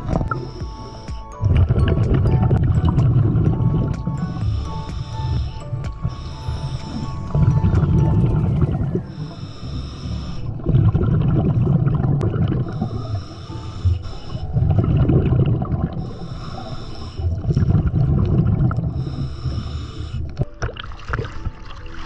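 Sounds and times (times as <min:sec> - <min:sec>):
exhaled bubbles rumbling: 0:00.0 - 0:09.3, 0:10.3 - 0:13.3, 0:14.0 - 0:22.0
regulator breathing hiss: 0:00.1 - 0:01.4, 0:04.2 - 0:07.4, 0:09.0 - 0:10.6, 0:12.7 - 0:14.6, 0:16.0 - 0:17.4, 0:18.9 - 0:20.3.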